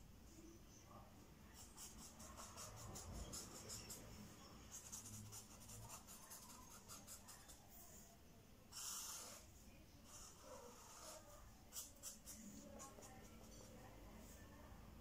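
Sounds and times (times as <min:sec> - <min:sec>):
pen scratching on paper: 0:01.5 - 0:08.0, 0:08.7 - 0:13.9.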